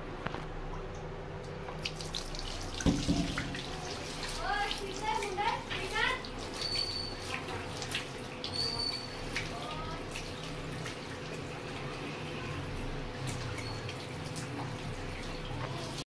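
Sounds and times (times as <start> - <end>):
water splashing on face: 1.7 - 16.0
tap running into sink: 1.8 - 3.8.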